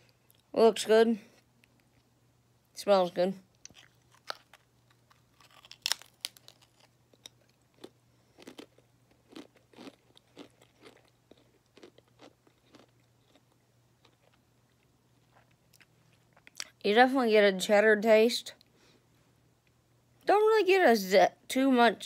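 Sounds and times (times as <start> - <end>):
potato crisp crunching: 3.5 - 16.8.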